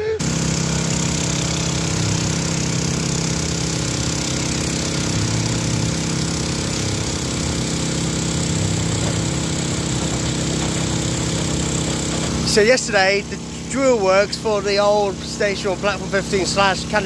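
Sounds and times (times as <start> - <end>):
construction machinery engine hum: 0.0 - 17.0
dense rattling: 0.2 - 13.3.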